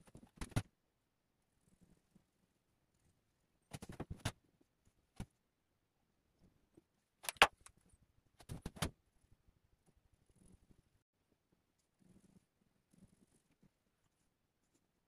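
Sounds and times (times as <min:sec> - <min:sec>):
marker caps clicking: 0:07.3 - 0:07.6.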